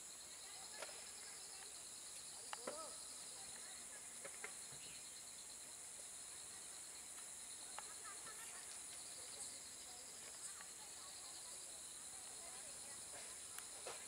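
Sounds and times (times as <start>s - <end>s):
high-pitched insect chorus: 0.0s - 14.0s
faint ticks: 7.1s - 9.6s, 10.2s - 10.8s.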